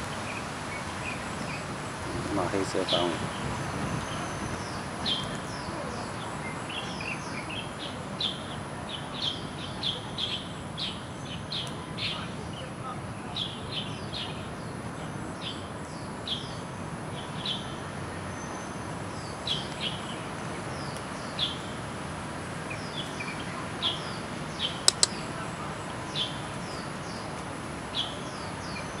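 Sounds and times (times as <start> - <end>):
outdoor hiss: 0.0 - 7.9
small birds chirping: 0.0 - 29.0
sharp clicks: 24.8 - 25.2.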